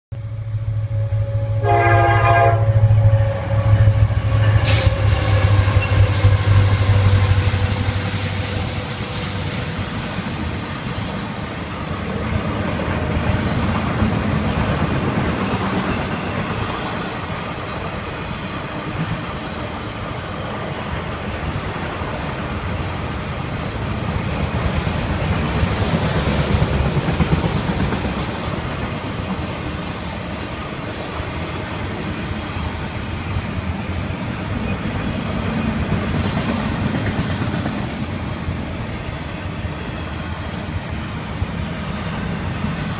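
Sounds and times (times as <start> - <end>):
diesel locomotive rumble: 0.2 - 16.9
train horn blast: 0.4 - 10.0
train cars clattering on rails: 24.0 - 33.0.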